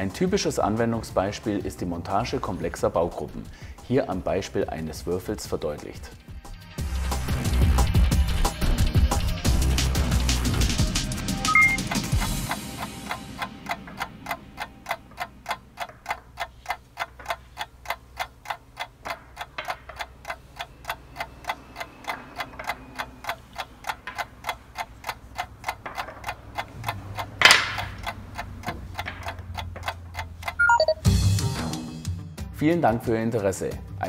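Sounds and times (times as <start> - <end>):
clock-like ticking: 7.2 - 31.3.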